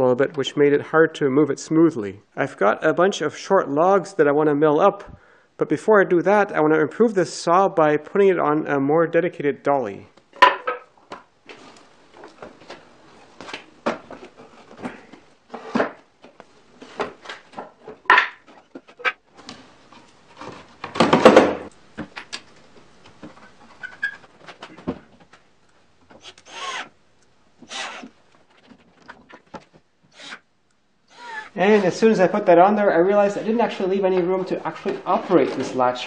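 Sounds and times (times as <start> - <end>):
wood knocks and clunks: 20.4 - 22.4.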